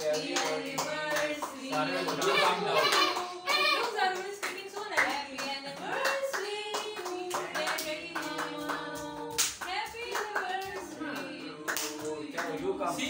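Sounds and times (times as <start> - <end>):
voices singing long notes: 0.0 - 4.3
people clapping: 0.0 - 13.0.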